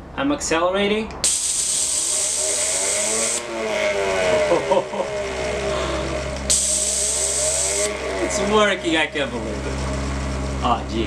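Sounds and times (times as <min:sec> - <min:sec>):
compressed air hissing: 0:01.2 - 0:04.1, 0:05.6 - 0:08.4
turbine whining: 0:01.2 - 0:11.0.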